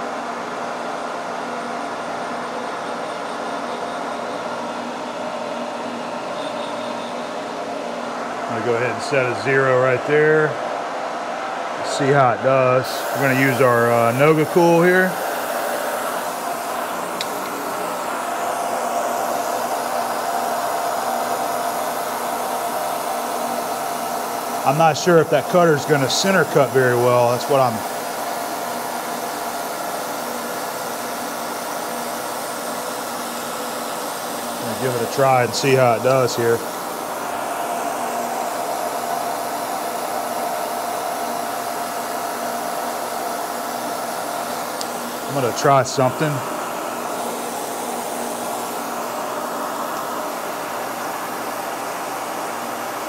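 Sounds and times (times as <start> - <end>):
milling machine spindle hum: 0.0 - 53.0
milling machine cutting steel: 12.8 - 39.3
compressed-air mist spraying: 12.8 - 52.9.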